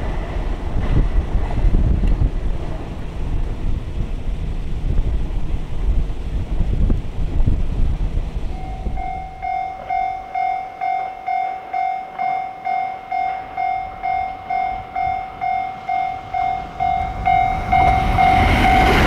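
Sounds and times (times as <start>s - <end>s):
train passing: 0.0s - 19.0s
level-crossing warning bell: 8.5s - 19.0s.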